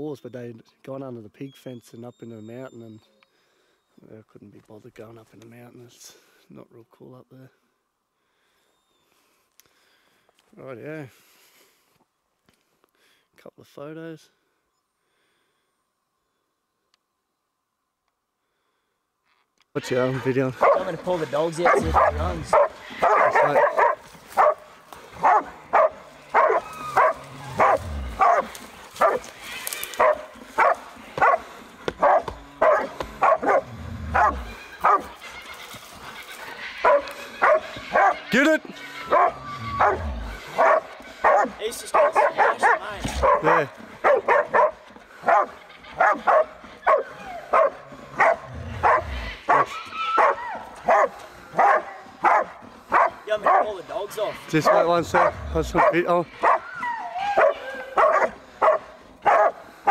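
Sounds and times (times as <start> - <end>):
dog barking sharply: 20.6 - 20.9, 21.6 - 24.6, 25.2 - 29.2, 30.0 - 31.4, 32.0 - 35.0, 36.8 - 38.2, 39.1 - 40.0, 40.6 - 53.7, 54.6 - 56.6, 57.4 - 59.9.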